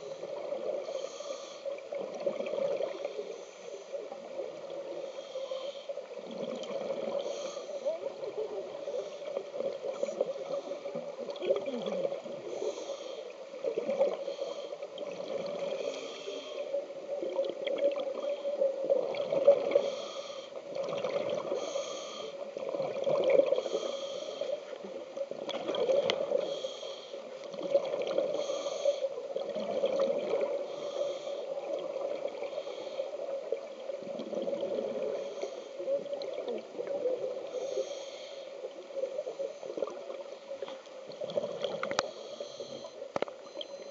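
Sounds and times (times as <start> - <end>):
scuba regulator breathing: 0.0 - 1.8, 3.0 - 4.0, 4.9 - 6.0, 6.8 - 8.0, 12.4 - 14.9, 15.6 - 16.8, 19.6 - 20.6, 21.4 - 22.6, 23.5 - 24.8, 26.2 - 27.4, 28.2 - 29.2, 30.4 - 31.7, 32.4 - 33.3, 34.9 - 35.9, 37.4 - 39.9, 41.6 - 43.9.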